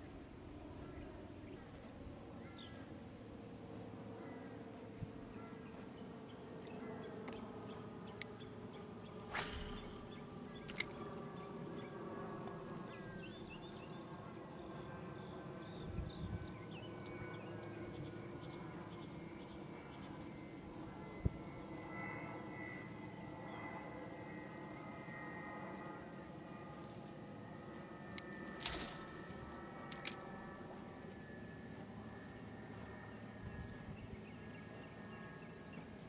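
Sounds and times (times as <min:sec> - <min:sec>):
steady buzzing drone: 0:00.0 - 0:36.0
sharp click: 0:10.6 - 0:11.0, 0:29.9 - 0:30.2.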